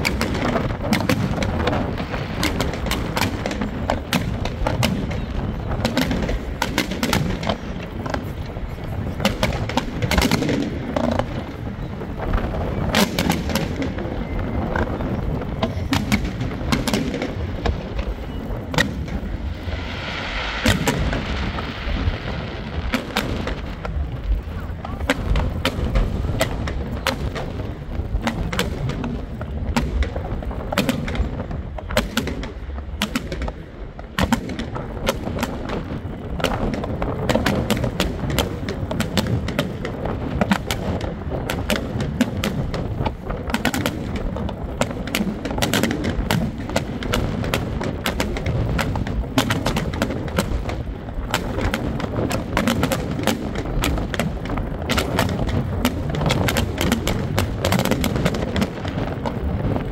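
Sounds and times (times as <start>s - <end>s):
fireworks bangs and crackles: 0.0s - 59.9s
low rumble: 13.8s - 28.2s.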